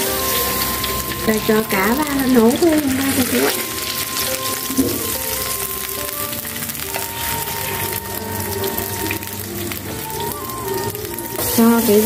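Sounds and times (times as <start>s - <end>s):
background music of held notes: 0.0s - 12.0s
fish sizzling in frying pan: 0.0s - 12.0s.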